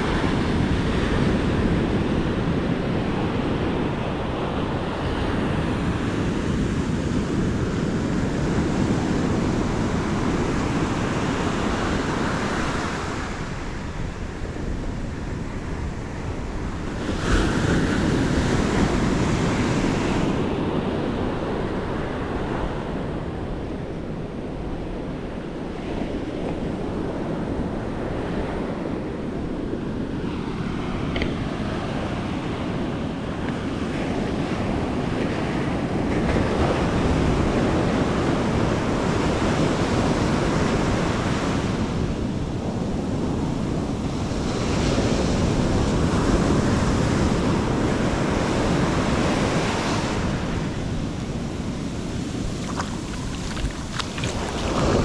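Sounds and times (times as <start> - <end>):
wind on microphone: 0.0 - 55.0
ocean surf breaking: 26.1 - 55.0
wash sliding up sand: 52.0 - 55.0.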